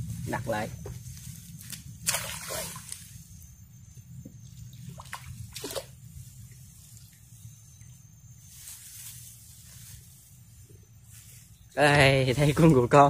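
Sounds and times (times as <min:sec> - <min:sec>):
water splashing and dripping: 0:01.7 - 0:03.1, 0:04.8 - 0:07.2.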